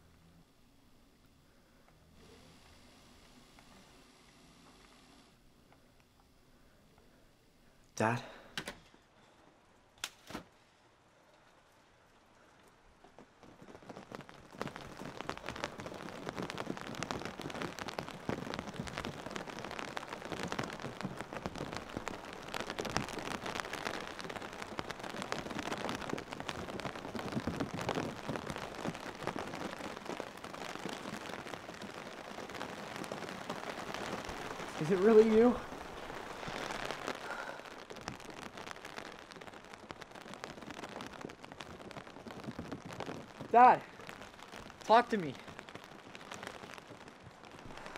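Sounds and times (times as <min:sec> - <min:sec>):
steady rain falling: 0:00.0 - 0:47.9.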